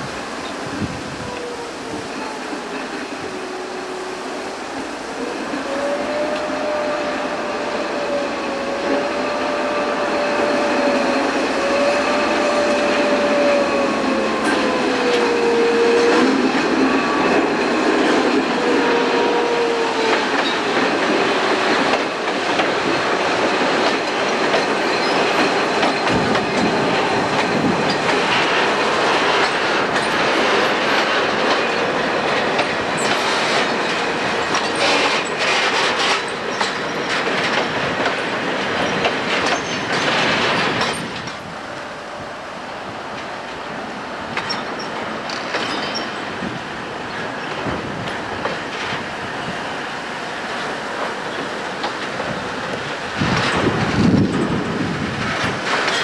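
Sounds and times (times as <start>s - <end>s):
wheels clicking over rail joints: 20.0s - 41.7s, 44.3s - 49.8s, 50.4s - 56.0s
train wheels squealing: 24.8s - 27.0s, 38.8s - 41.1s, 44.4s - 46.4s.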